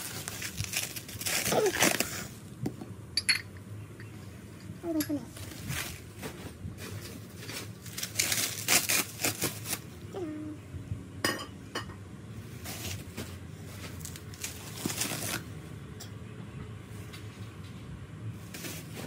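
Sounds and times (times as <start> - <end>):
bubble wrap rustling and crinkling: 0.0 - 2.4, 5.4 - 9.9, 12.6 - 15.5, 18.4 - 19.0
glass clink: 3.2 - 4.1, 11.2 - 12.0.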